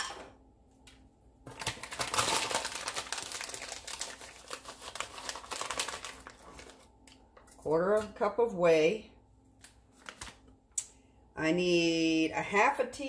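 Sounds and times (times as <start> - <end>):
plastic bag crinkling: 1.5 - 7.7.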